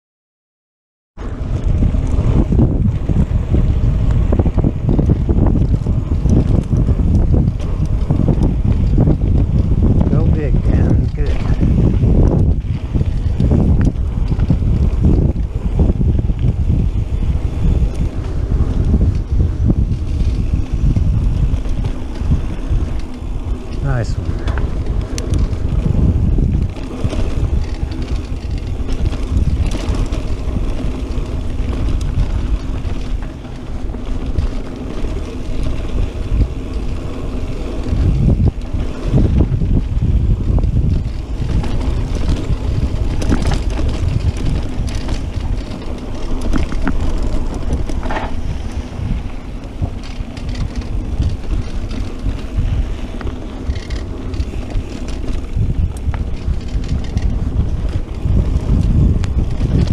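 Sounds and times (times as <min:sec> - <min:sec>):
bike rattling over bumps: 0:01.2 - 0:59.9
bike tyres rumbling on dirt: 0:01.2 - 0:59.9
wind buffeting microphone: 0:01.2 - 0:59.9.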